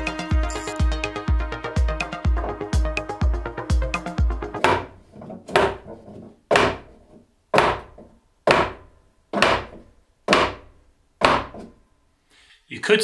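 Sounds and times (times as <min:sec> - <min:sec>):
mallet knocking on wood: 0:04.6 - 0:04.9, 0:05.5 - 0:05.9, 0:06.5 - 0:06.9, 0:07.5 - 0:11.7.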